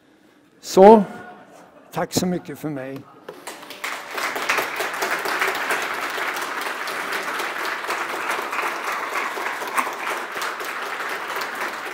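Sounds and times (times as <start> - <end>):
audience applauding: 3.4 - 11.9.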